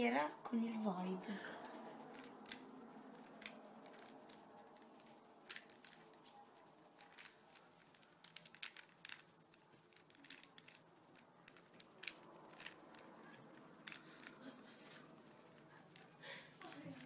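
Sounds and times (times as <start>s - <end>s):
plastic puzzle cube clicking: 2.1s - 6.4s, 7.0s - 14.4s.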